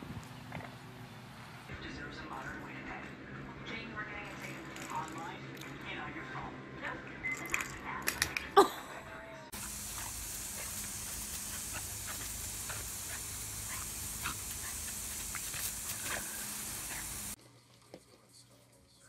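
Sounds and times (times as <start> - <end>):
garden hose spraying water: 9.5 - 17.4.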